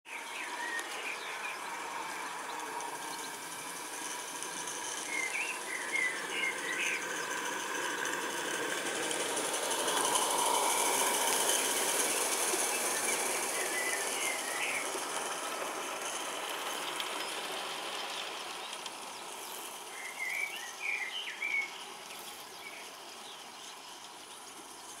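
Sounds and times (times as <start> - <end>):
steam hiss: 0.1 - 25.0
steam locomotive running: 0.1 - 25.0
bird chirps: 4.9 - 8.2, 17.2 - 24.9.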